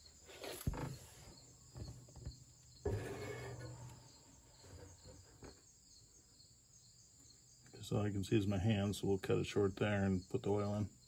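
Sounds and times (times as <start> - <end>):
insect chirping: 0.0 - 11.0
rustling scrape: 2.8 - 5.6.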